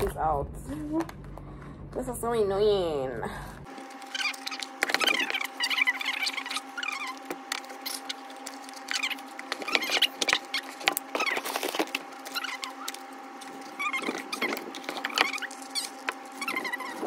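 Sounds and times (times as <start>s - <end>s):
faint steady hum: 0.0s - 17.0s
cardboard box scraping and squeaking: 3.9s - 17.0s.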